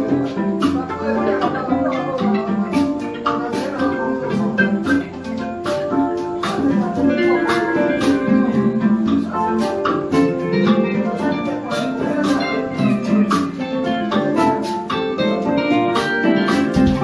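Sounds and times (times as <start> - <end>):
electronic keyboard: 0.0 - 17.0
guitars: 0.0 - 17.0
sharp percussive hits: 16.0 - 17.0.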